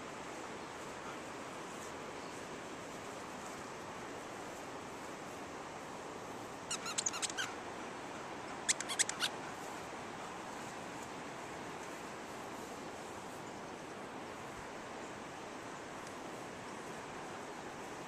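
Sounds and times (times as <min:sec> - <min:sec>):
dog toy squeaking: 0:06.7 - 0:07.5, 0:08.7 - 0:09.3.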